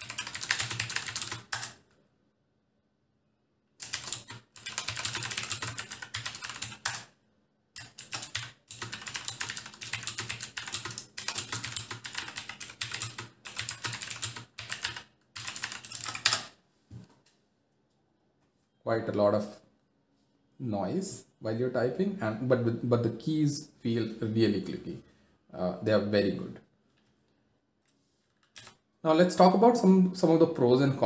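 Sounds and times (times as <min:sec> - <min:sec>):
mechanical keyboard typing: 0:00.0 - 0:01.8, 0:03.8 - 0:07.2, 0:07.8 - 0:16.6, 0:28.4 - 0:28.8.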